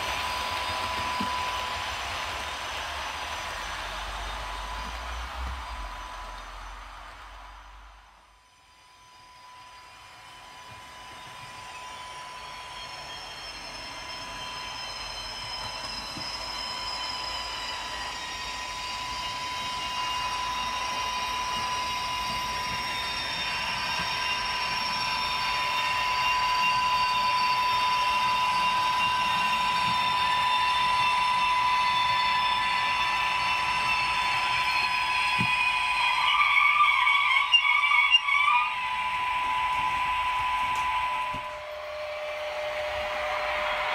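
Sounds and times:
model train whining: 0:00.0 - 0:43.9.

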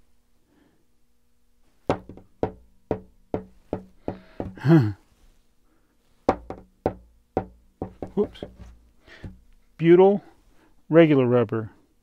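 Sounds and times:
rubber ball bouncing on tabletop: 0:01.9 - 0:04.6, 0:06.3 - 0:09.6
person exclaiming: 0:04.6 - 0:05.0.

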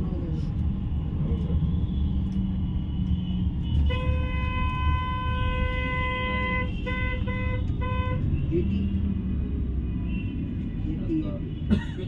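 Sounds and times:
bus engine and road rumble: 0:00.0 - 0:12.0
vehicle horn: 0:03.7 - 0:08.2.

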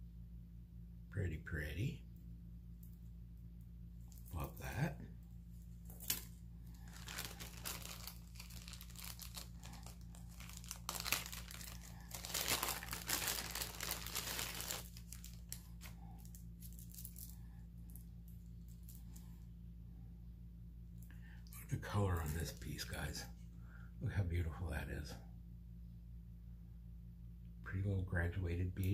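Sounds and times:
packaging crinkling and rustling: 0:05.8 - 0:19.2.

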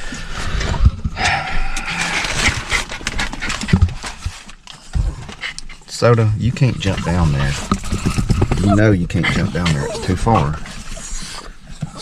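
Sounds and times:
rustling and knocks of movement: 0:00.0 - 0:12.0
dog whining and panting: 0:08.5 - 0:12.0.

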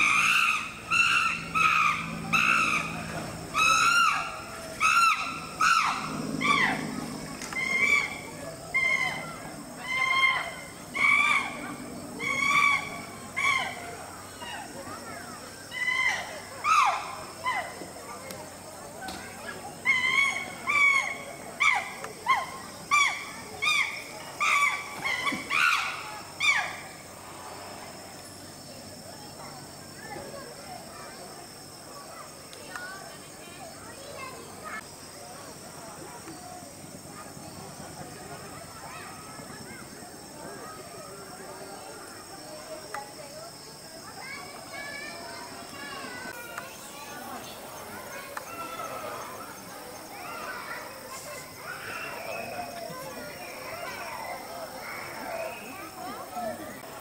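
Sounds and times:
chimpanzee screaming: 0:00.0 - 0:03.0, 0:03.6 - 0:06.9, 0:07.5 - 0:11.6, 0:12.2 - 0:13.9, 0:15.7 - 0:17.7, 0:19.8 - 0:26.9.

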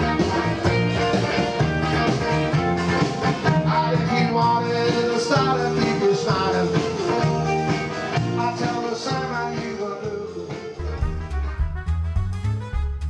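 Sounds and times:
live rock and roll band: 0:00.0 - 0:13.0.

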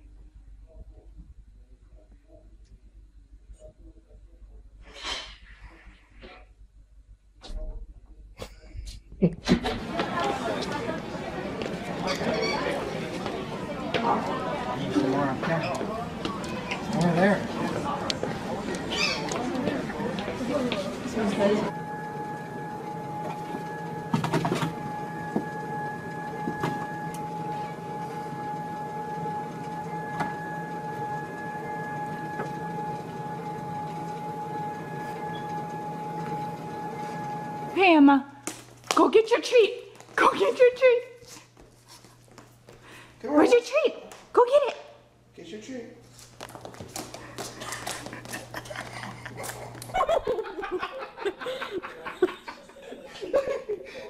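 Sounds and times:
treadmill motor whine: 0:09.5 - 0:44.0, 0:45.6 - 0:54.0
dog paws tapping on hardwood floor: 0:46.1 - 0:49.9
people laughing: 0:47.2 - 0:54.0.

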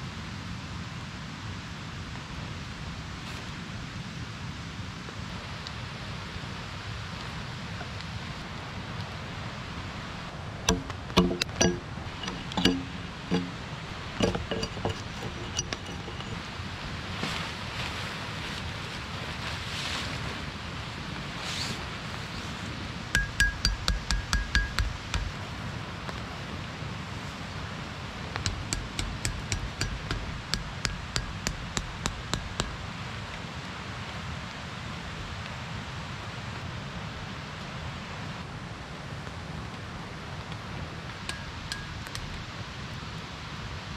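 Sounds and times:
hammering blows: 0:10.6 - 0:16.5, 0:23.2 - 0:25.4, 0:28.4 - 0:32.8, 0:41.3 - 0:42.4
hard objects clinking: 0:10.7 - 0:16.5.

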